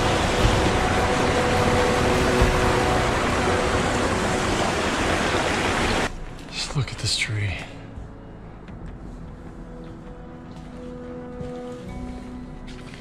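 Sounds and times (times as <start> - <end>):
stream rushing over rocks: 0.0 - 6.1.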